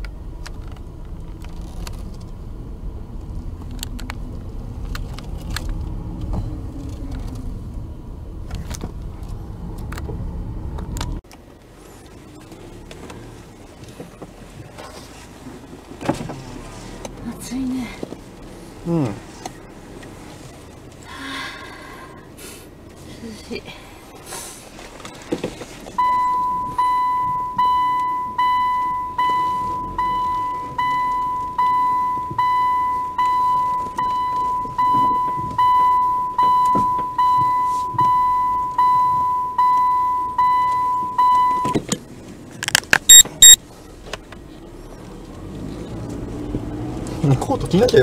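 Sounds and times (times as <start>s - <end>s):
car warning chime beeping: 26.0s - 41.8s, 43.1s - 43.6s.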